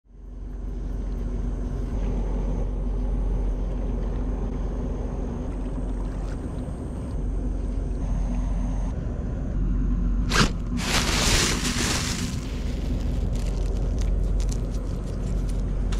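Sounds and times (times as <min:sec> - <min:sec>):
ship machinery drone: 0:00.1 - 0:15.9.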